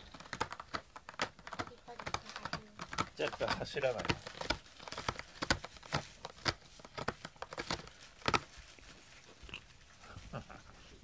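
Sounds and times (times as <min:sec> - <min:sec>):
cat chewing cardboard: 0:00.0 - 0:11.0.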